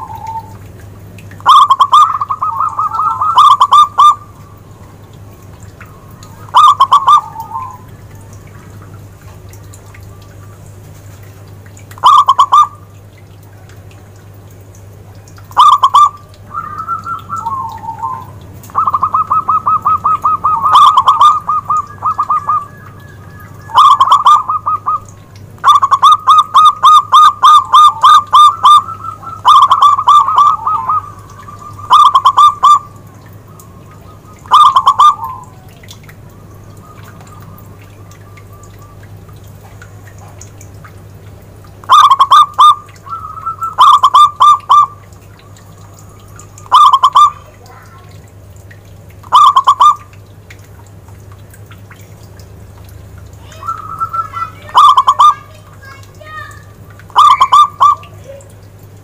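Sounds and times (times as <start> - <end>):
dove cooing: 1.4 - 4.6, 5.8 - 7.9, 12.0 - 12.8, 15.5 - 35.9, 41.8 - 48.1, 49.3 - 50.1, 53.5 - 56.0, 57.1 - 58.6.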